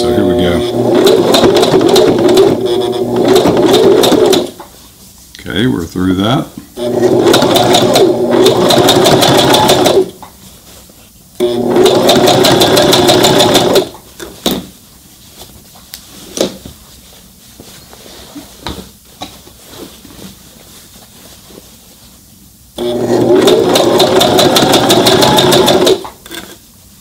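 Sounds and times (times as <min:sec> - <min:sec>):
sewing machine stitching: 0:00.6 - 0:04.6, 0:06.8 - 0:10.2, 0:11.4 - 0:14.0, 0:22.8 - 0:26.2.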